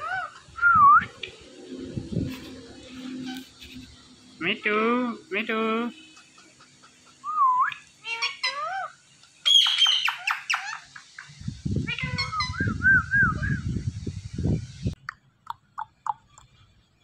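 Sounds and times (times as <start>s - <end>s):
parakeets calling: 0.0s - 0.5s, 2.8s - 12.6s
low rough noise: 0.2s - 8.0s.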